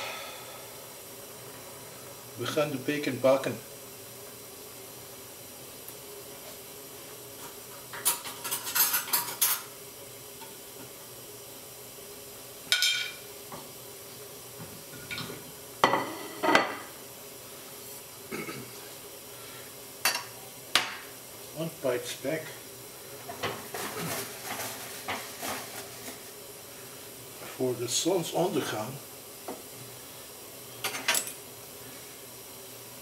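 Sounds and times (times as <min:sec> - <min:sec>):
faint steady hum: 0:00.0 - 0:33.0
metal pans and utensils clinking: 0:07.9 - 0:09.7.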